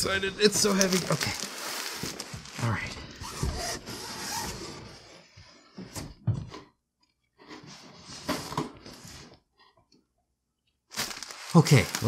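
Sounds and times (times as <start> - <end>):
bubble wrap and cardboard rustling: 0.0 - 5.1, 10.9 - 12.0.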